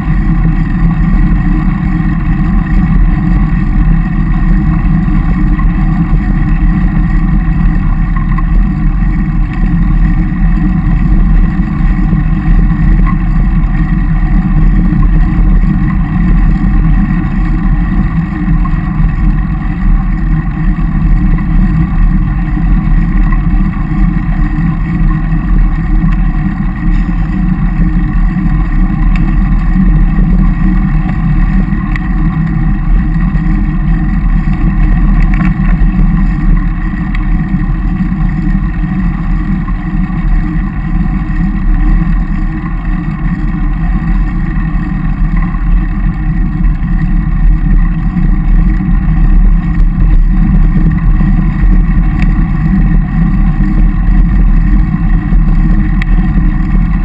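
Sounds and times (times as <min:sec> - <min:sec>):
bicycle tyres on tarmac: 0:00.0 - 0:57.0
wind rumble on microphone: 0:00.0 - 0:57.0.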